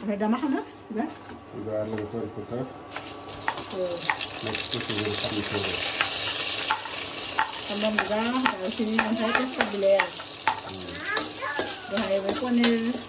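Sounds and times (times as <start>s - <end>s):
food sizzling in oil: 2.9s - 13.0s.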